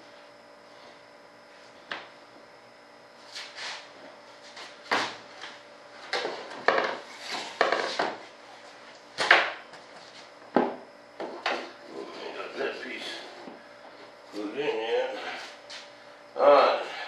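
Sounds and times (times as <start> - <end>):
boards scraping on workbench: 6.5 - 8.2.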